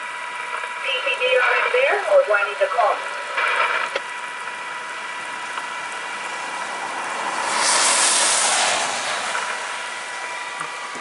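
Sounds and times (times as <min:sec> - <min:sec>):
steady rain: 0:04.8 - 0:11.0
car tyres hissing through water: 0:05.3 - 0:10.9.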